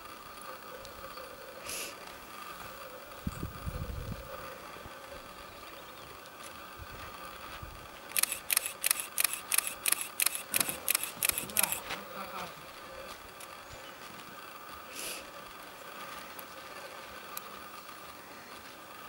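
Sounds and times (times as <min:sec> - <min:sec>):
faint outdoor background: 0:00.0 - 0:19.0
rapid sharp clicks: 0:08.1 - 0:11.8.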